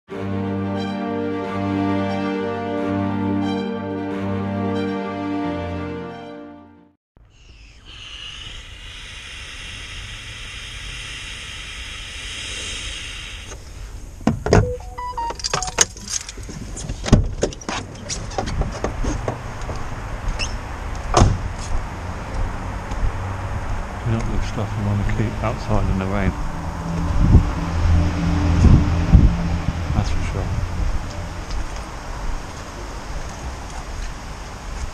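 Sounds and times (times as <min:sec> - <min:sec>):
steady hiss: 0:07.4 - 0:14.2
van door opening with clicks: 0:21.1 - 0:21.4
van door slamming shut: 0:21.1 - 0:21.5.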